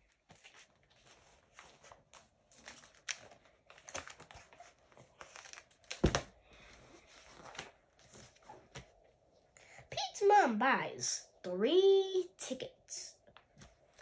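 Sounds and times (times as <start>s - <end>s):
paper rustling and crinkling: 0.0s - 9.0s
book thump: 5.9s - 6.3s.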